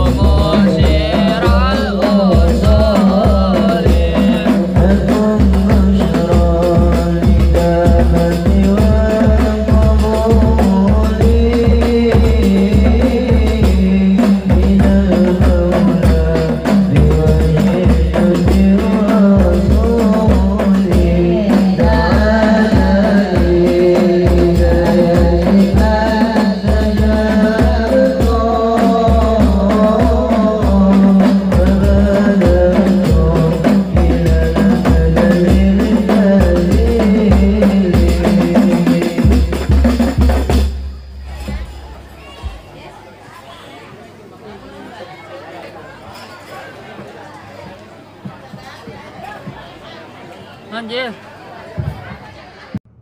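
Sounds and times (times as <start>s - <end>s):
men singing: 0.0s - 40.7s
frame drums beating: 0.0s - 43.2s, 46.2s - 50.0s.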